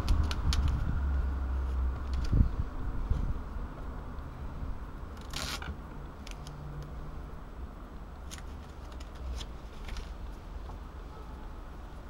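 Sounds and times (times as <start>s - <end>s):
tape ticks and rustles: 0.0s - 3.2s, 5.1s - 7.0s, 8.2s - 10.9s
tape tearing: 5.1s - 6.6s, 8.2s - 10.2s.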